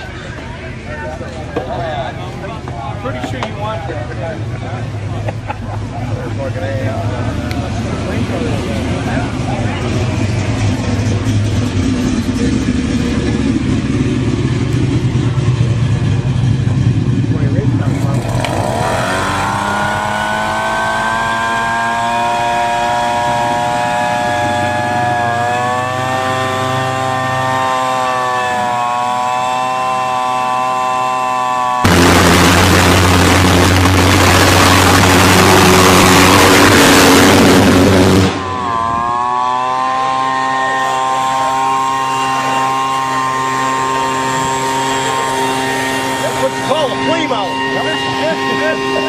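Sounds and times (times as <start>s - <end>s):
jet roaring: 0.0s - 49.0s
leaf blower engine running: 1.6s - 49.0s.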